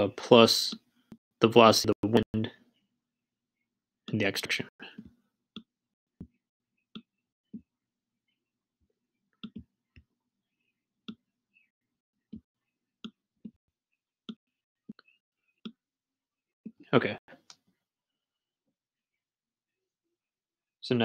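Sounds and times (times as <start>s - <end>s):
stylus clicking on tablet screen: 9.3s - 10.1s.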